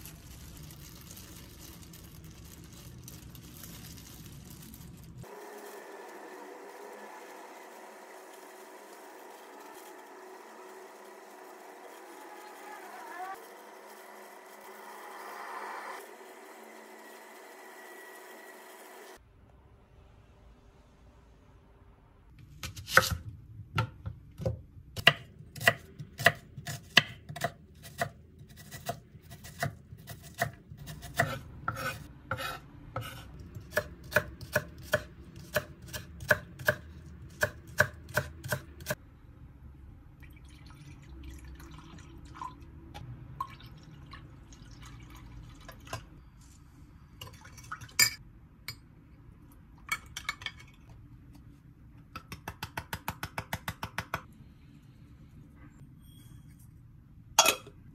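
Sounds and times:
knife chopping on cutting board: 0:30.4 - 0:36.8.

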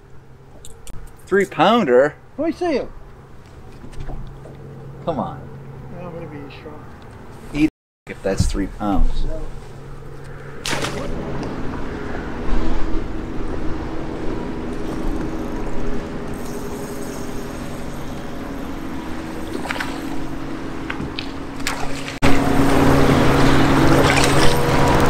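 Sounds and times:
electric trolling motor humming: 0:09.6 - 0:25.0.

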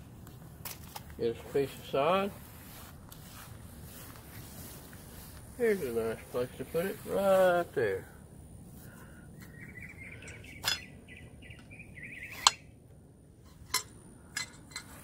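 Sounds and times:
bird chirping: 0:09.2 - 0:12.7
metal weed tool clicking: 0:13.5 - 0:15.0.

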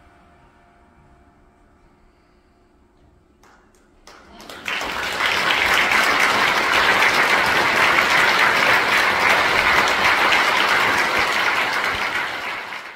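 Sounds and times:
audience applauding: 0:03.4 - 0:12.9.

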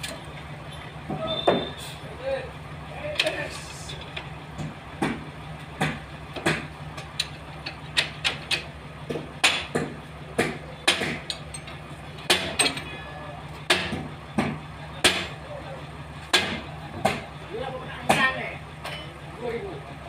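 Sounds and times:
sharp irregular knocks: 0:05.8 - 0:06.7, 0:07.9 - 0:11.4, 0:12.3 - 0:12.8, 0:13.7 - 0:15.4.

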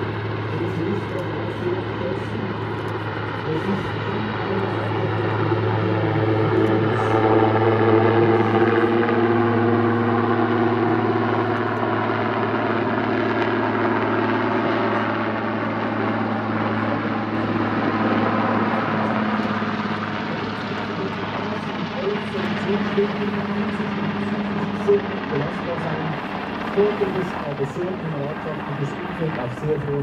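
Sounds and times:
helicopter flying past: 0:00.0 - 0:30.0.

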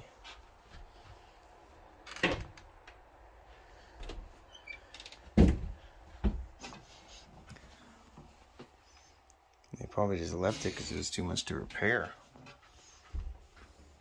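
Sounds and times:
knocks and thuds: 0:05.3 - 0:06.5.

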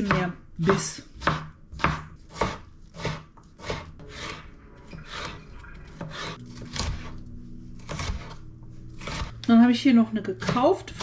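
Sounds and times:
knife slicing vegetables: 0:00.0 - 0:04.4, 0:05.0 - 0:07.2, 0:07.8 - 0:08.4, 0:09.0 - 0:09.4.

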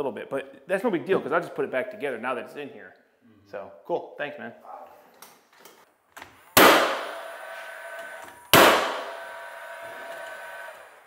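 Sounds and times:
nail gun firing into wood: 0:06.6 - 0:07.2, 0:08.5 - 0:09.2.

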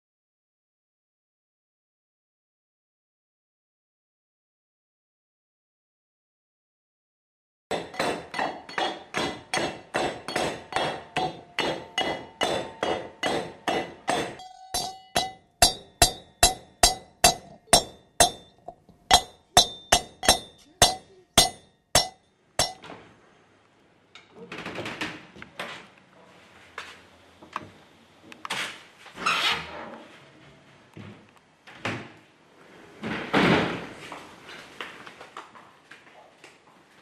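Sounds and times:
pestle pounding in metal mortar: 0:07.7 - 0:22.8.

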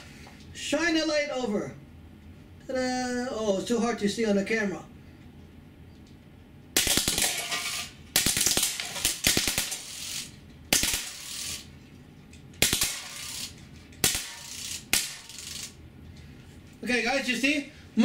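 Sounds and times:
air gun rapid bursts: 0:08.2 - 0:11.7, 0:12.6 - 0:15.7.

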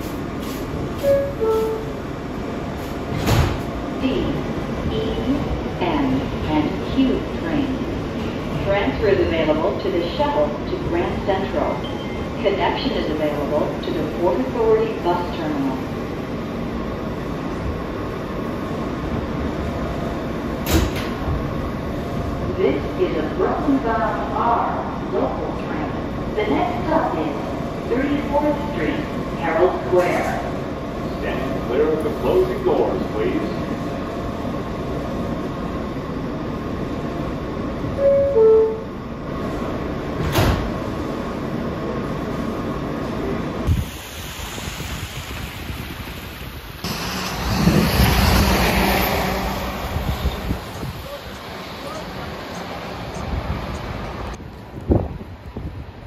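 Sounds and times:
hum of stopped train: 0:00.0 - 0:56.0
subway car rumble: 0:00.0 - 0:56.0
sliding doors closing with thump: 0:02.8 - 0:03.8, 0:20.6 - 0:21.4, 0:40.2 - 0:41.0.

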